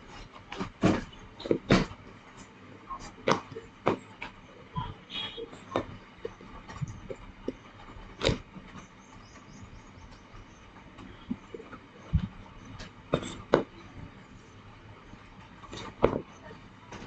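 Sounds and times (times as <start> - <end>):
rolling pin rolling clay: 5.5 - 17.0.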